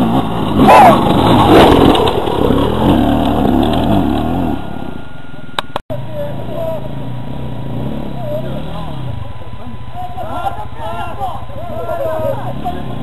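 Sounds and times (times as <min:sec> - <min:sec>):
dirt bike engine revving: 0:00.0 - 0:05.1, 0:06.3 - 0:13.0.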